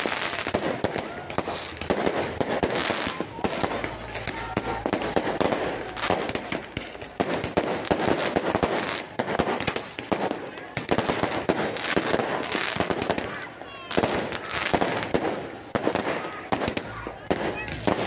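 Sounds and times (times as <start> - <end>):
fireworks bangs and crackling: 0.0 - 18.0.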